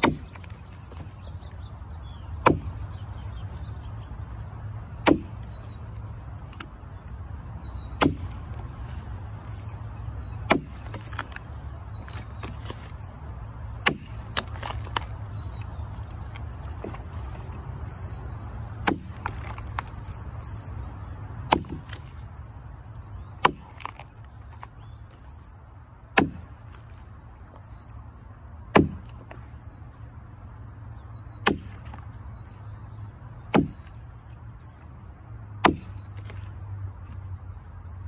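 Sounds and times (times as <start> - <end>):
axe chopping into log: 0.0 - 1.1, 2.4 - 2.8, 5.0 - 5.5, 7.9 - 8.6, 10.4 - 12.9, 13.7 - 15.2, 18.8 - 20.0, 21.4 - 22.2, 23.3 - 24.7, 26.2 - 26.5, 28.7 - 29.4, 31.4 - 32.0, 33.5 - 34.0, 35.6 - 36.5.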